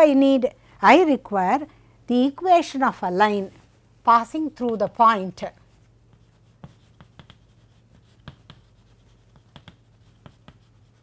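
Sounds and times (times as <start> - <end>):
chalk tapping and scratching: 5.6 - 11.0.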